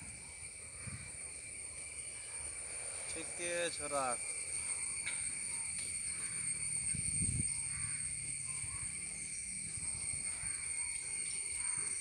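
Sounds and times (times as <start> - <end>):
wind rumble on microphone: 0.0 - 1.4, 6.7 - 10.8
high-pitched insect drone: 0.0 - 12.0
faint crow caws: 0.7 - 1.3, 3.9 - 6.9, 7.5 - 12.0.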